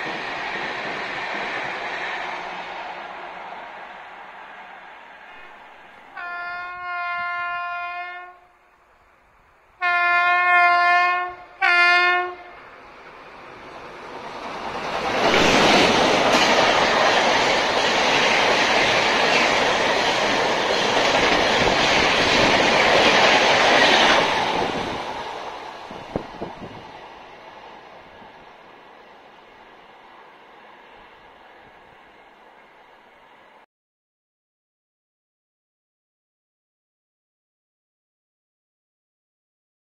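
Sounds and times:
train passing on rails: 0.0s - 33.7s
train horn blasts: 6.1s - 8.6s, 9.8s - 12.6s.

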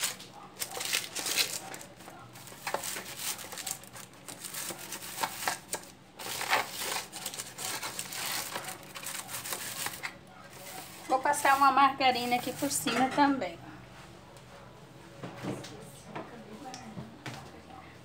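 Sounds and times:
parchment paper crinkling: 0.0s - 12.8s.

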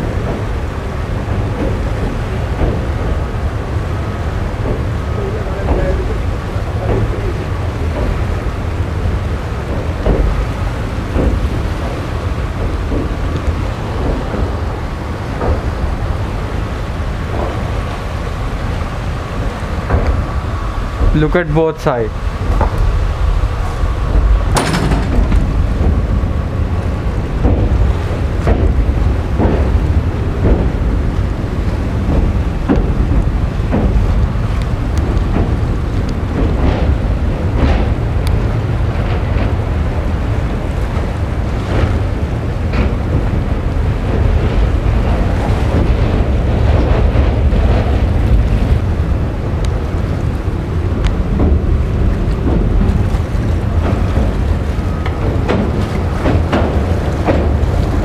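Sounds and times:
train rumbling: 0.0s - 58.0s
wind rushing over microphone: 0.0s - 58.0s
knocks and clanks from coaches: 5.6s - 8.5s, 9.6s - 14.7s, 24.2s - 26.4s, 27.3s - 31.2s, 31.9s - 39.6s, 51.3s - 58.0s.

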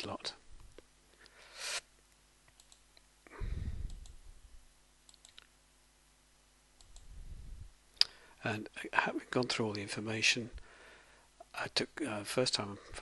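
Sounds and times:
computer mouse clicks: 2.5s - 3.1s, 3.8s - 4.2s, 5.1s - 5.5s, 6.8s - 7.1s.

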